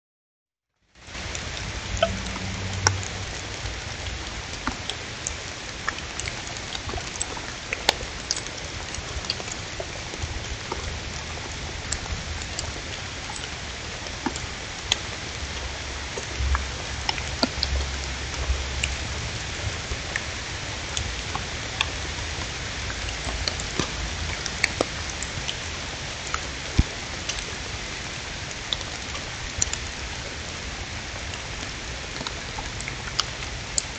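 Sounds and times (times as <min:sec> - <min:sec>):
steady outdoor hiss: 0:00.9 - 0:33.9
low rumble: 0:01.2 - 0:04.6, 0:15.6 - 0:21.0.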